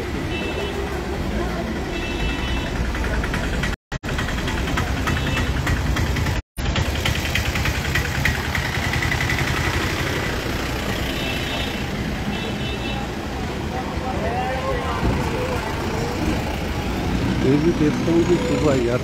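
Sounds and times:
street noise: 0.0 - 19.0
vehicle engine running: 2.6 - 11.3.

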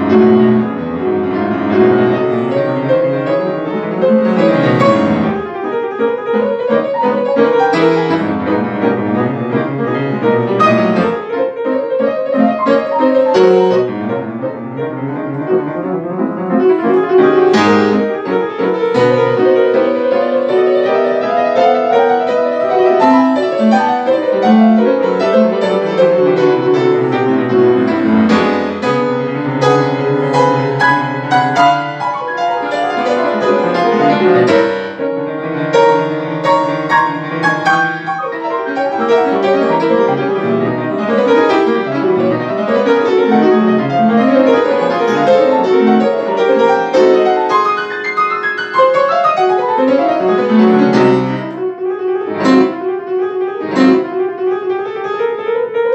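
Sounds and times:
solo classical piano: 0.0 - 55.9.

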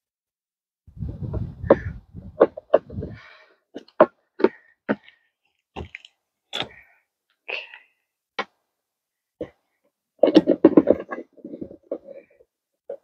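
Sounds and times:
plastic parts knocking and clicking: 10.2 - 12.4.

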